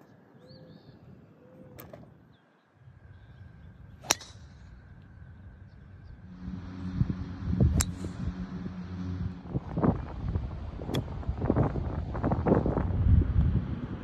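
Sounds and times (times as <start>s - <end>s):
wind buffeting microphone: 2.8s - 14.0s
golf club striking ball: 4.0s - 4.6s.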